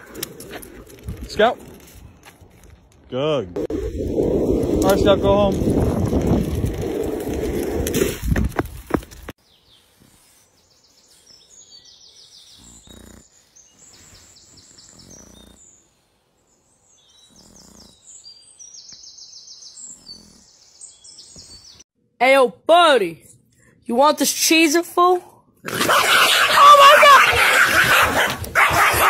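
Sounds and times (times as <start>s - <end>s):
small birds singing: 9.4s - 21.9s.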